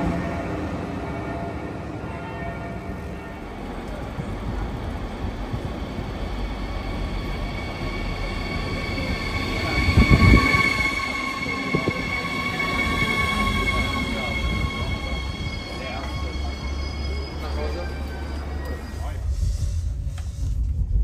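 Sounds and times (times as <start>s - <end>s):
train rumbling on rails: 0.0s - 21.0s
high squeal of steady tones: 4.5s - 19.9s.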